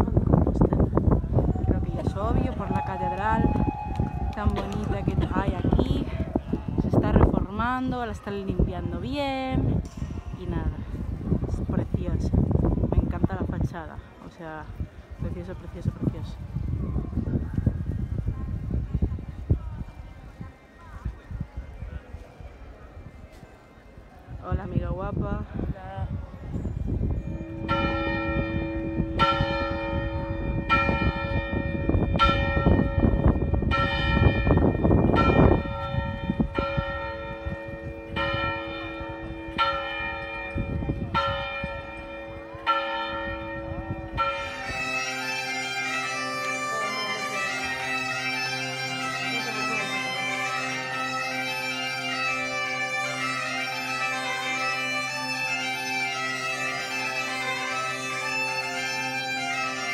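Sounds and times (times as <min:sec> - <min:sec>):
large church bell tolling: 0:27.0 - 0:59.9
bagpipe playing a tune: 0:43.4 - 0:59.9.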